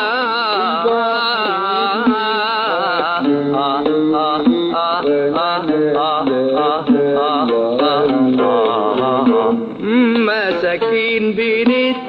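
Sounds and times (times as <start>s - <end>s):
oud plucked notes: 0.0s - 12.0s
person singing with vibrato: 0.0s - 12.0s.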